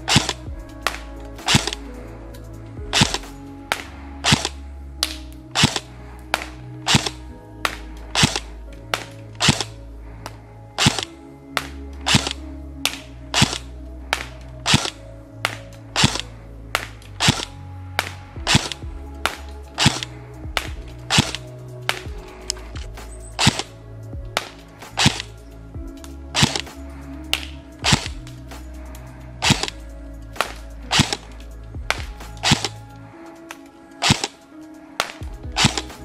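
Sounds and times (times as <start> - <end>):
background music: 0.0 - 36.0
airsoft rifle firing single shots: 3.0 - 9.8, 10.8 - 13.6, 14.2 - 16.2, 16.8 - 20.0, 24.4 - 25.3, 31.9 - 32.8, 34.0 - 34.4.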